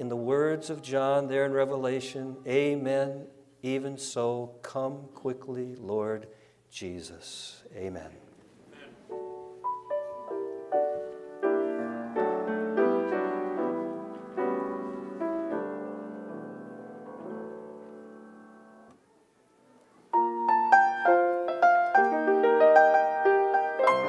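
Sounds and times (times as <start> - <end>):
solo piano chords: 9.1 - 18.9, 20.1 - 24.0.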